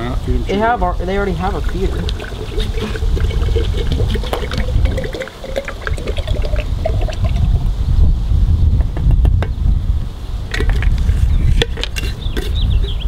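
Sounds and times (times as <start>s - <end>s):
water pouring into glass jar: 1.2s - 7.7s.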